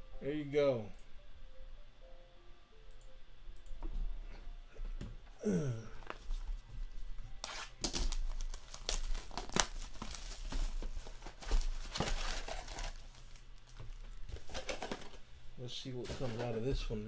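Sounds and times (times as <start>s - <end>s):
plastic shrink wrap tearing: 7.4s - 15.2s.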